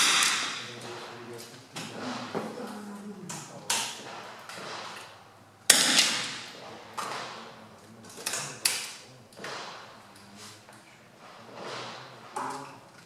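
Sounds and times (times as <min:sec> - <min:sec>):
rifle shots echoing: 0:00.0 - 0:01.1, 0:05.7 - 0:07.4.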